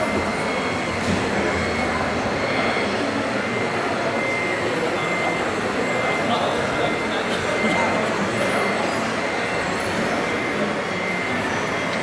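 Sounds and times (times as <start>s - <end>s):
crowd babble in a hall: 0.0s - 12.0s
faint high whine: 0.0s - 12.0s.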